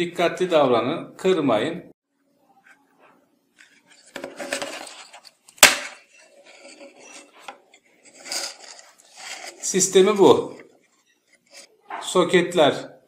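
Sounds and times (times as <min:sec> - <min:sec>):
plastic rubbing and rattling: 0:03.6 - 0:11.7.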